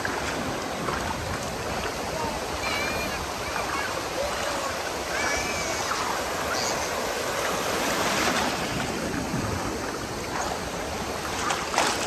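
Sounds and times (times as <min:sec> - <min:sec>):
seawater washing: 0:00.0 - 0:12.0
small waves breaking: 0:00.0 - 0:12.0.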